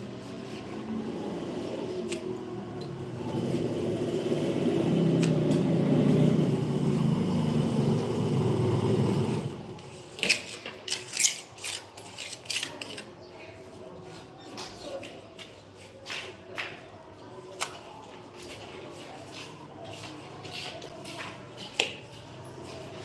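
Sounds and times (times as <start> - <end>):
steel trowel scraping mortar: 10.3 - 13.1.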